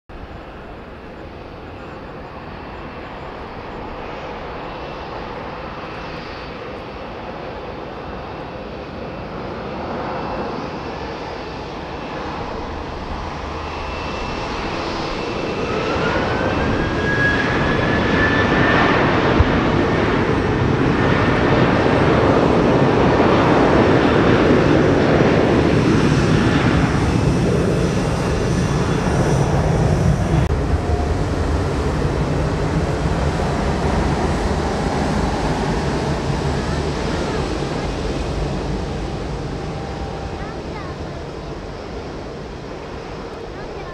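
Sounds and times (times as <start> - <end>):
jet engines taxiing: 0.1 - 43.9
rising engine whine: 10.1 - 43.6.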